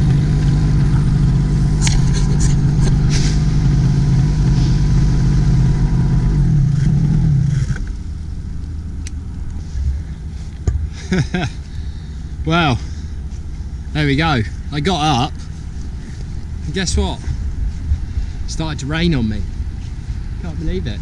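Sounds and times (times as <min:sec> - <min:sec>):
low rushing noise: 0:00.0 - 0:21.0
two-stroke paramotor engine: 0:00.0 - 0:21.0.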